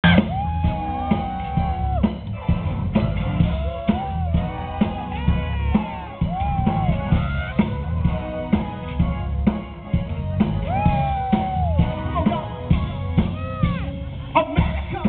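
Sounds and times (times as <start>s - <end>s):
bass and guitar: 0.0s - 15.0s
drum kit beat: 0.0s - 15.0s
gliding lead melody: 0.3s - 15.0s.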